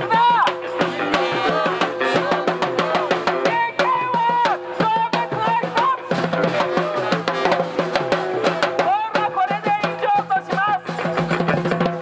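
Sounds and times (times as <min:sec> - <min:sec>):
marching drum beats: 0:00.0 - 0:12.0.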